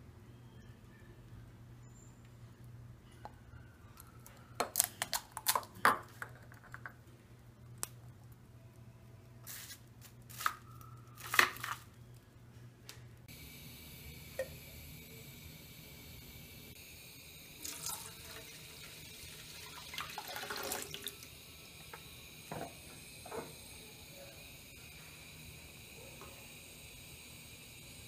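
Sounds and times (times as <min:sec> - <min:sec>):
eggshells cracking over a bowl: 0:04.0 - 0:07.0
liquid pouring into a saucepan: 0:17.6 - 0:21.4.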